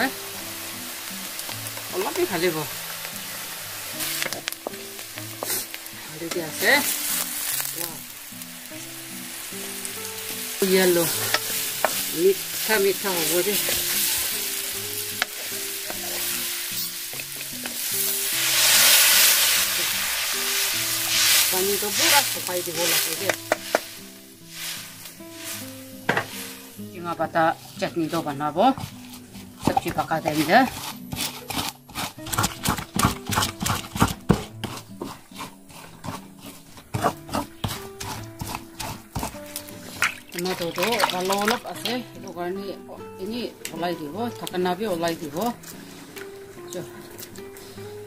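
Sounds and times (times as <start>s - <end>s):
food frying in a wok: 0.0s - 31.4s
wooden spatula scraping wok: 0.0s - 42.0s, 43.7s - 48.0s
water poured into hot wok: 6.6s - 26.8s, 39.6s - 42.0s
wooden pestle pounding in bowl: 29.6s - 39.4s.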